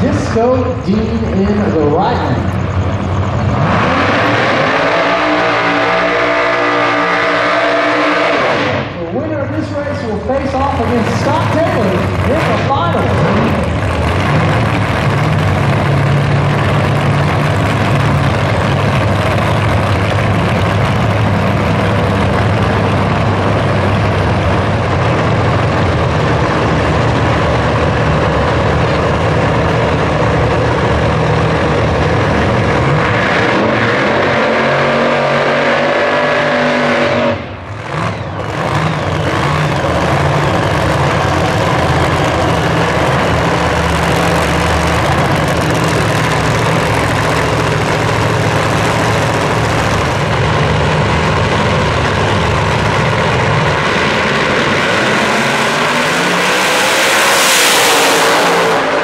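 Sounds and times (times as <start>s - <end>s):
race car engines running: 0.0s - 59.0s.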